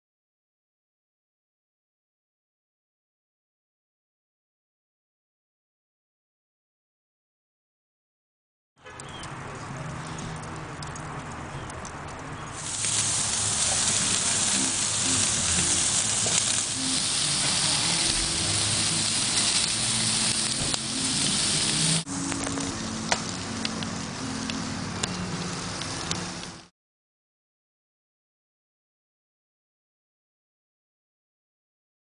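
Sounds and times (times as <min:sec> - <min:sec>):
charcoal fire crackling pops: 0:08.9 - 0:26.7
meat sizzling on a grill: 0:09.1 - 0:26.7.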